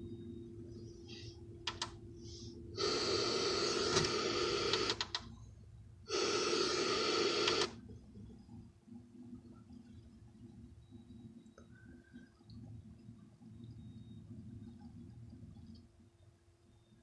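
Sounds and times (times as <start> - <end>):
radio static hiss: 2.8 - 5.0, 6.1 - 7.7.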